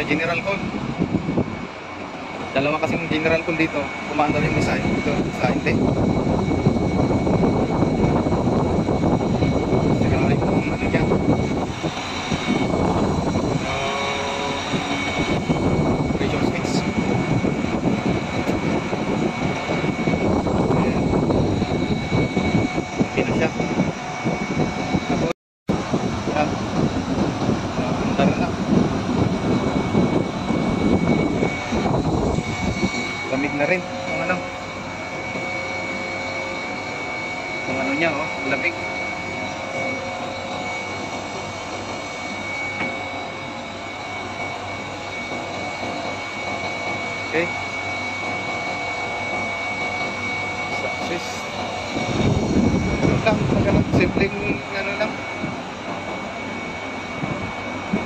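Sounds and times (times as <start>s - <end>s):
air conditioner whirring: 0.0s - 58.0s
thin high whine: 0.0s - 58.0s.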